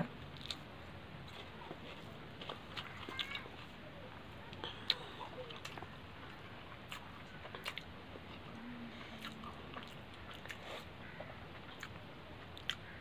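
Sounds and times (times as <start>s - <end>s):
person chewing: 1.3s - 3.7s, 4.6s - 10.9s, 11.5s - 12.9s.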